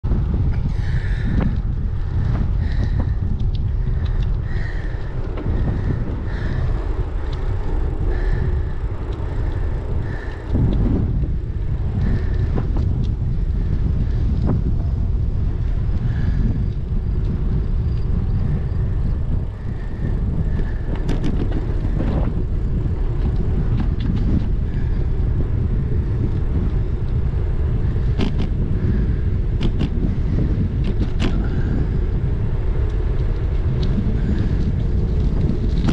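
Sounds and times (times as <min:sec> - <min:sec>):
tyre noise on asphalt: 0:00.0 - 0:35.9
wind buffeting microphone: 0:00.0 - 0:35.9
small clicks: 0:06.6 - 0:07.6, 0:28.2 - 0:28.6.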